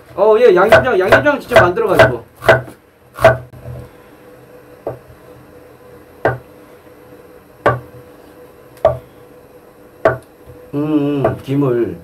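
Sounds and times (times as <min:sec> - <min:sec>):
knife chopping on wooden board: 0:00.6 - 0:03.5, 0:06.2 - 0:06.4, 0:07.6 - 0:07.9, 0:08.8 - 0:09.0, 0:10.0 - 0:10.2.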